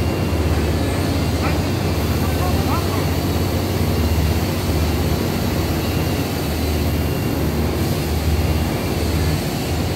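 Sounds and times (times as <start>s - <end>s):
machinery low hum: 0.0s - 9.9s
machinery noisy hiss: 0.0s - 9.9s.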